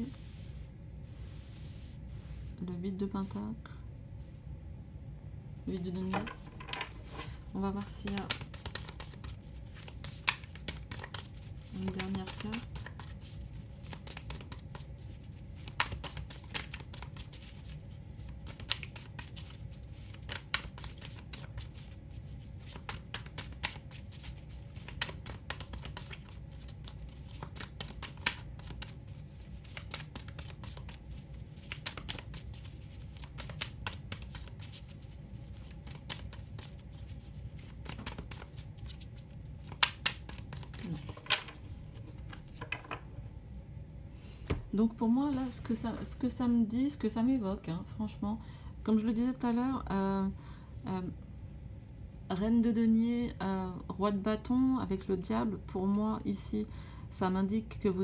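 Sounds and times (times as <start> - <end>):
low steady hum: 0.0 - 58.0
cards being shuffled: 6.1 - 43.1.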